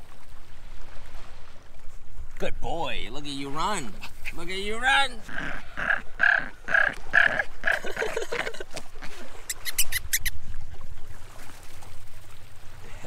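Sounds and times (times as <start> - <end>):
puppy growling: 5.2 - 8.5.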